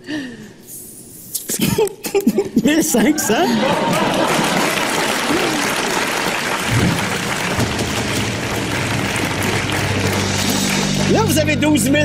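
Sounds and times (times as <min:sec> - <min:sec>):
audience applauding: 0:03.2 - 0:11.4
low game show music: 0:06.7 - 0:12.0.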